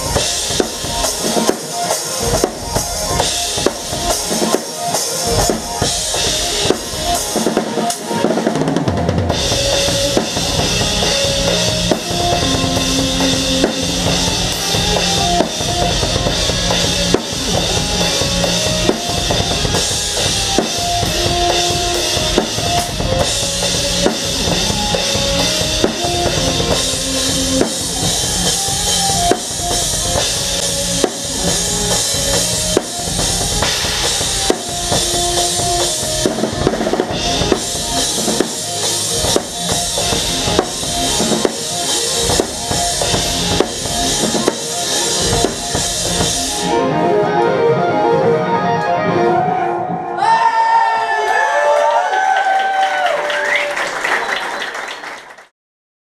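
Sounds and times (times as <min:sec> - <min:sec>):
live band playing: 0:00.0 - 0:50.4
cymbals washing: 0:09.4 - 0:46.7.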